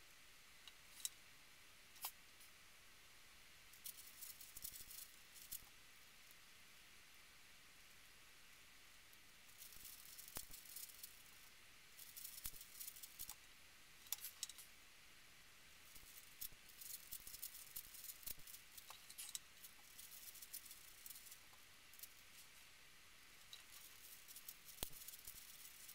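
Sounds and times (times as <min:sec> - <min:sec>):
puzzle cube clicking and rattling: 0:16.0 - 0:21.4.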